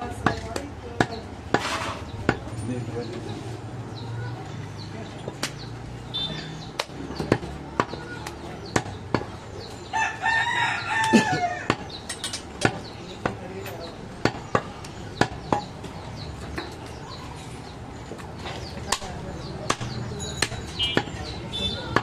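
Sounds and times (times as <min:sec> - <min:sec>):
knife chopping meat on wood: 0:18.9 - 0:21.2.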